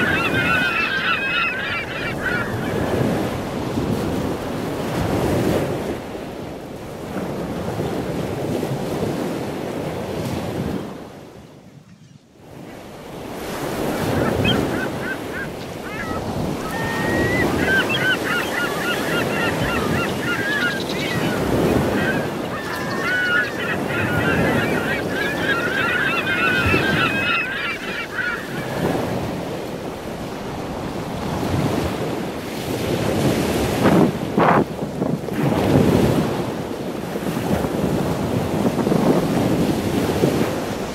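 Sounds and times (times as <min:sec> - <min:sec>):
waterbirds calling: 0:00.0 - 0:04.8, 0:11.6 - 0:32.0
ocean surf breaking: 0:00.0 - 0:11.4, 0:12.4 - 0:34.3
wind buffeting microphone: 0:00.0 - 0:40.9.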